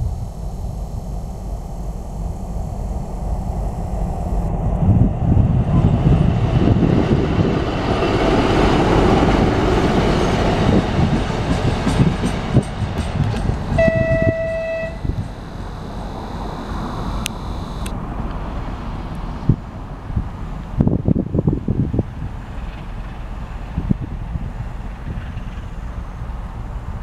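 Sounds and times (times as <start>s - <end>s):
diesel locomotive engine: 0.0s - 27.0s
locomotive horn blast: 13.7s - 16.8s.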